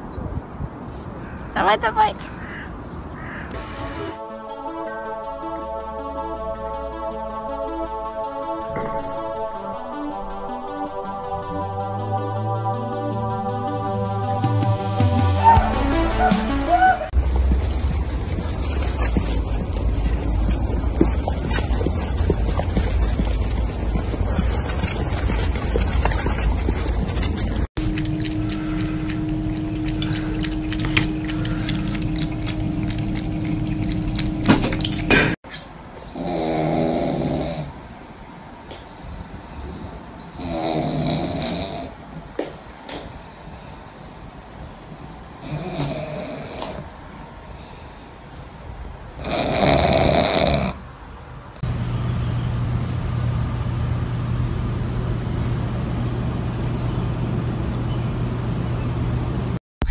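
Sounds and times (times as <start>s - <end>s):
steady low hum: 17.2s - 35.4s, 51.6s - 59.9s
cat pawing and lapping water: 27.8s - 35.4s
tap water running thin stream: 27.8s - 35.4s
dog snoring: 36.1s - 37.7s, 40.4s - 41.9s, 45.4s - 46.8s, 49.2s - 50.8s.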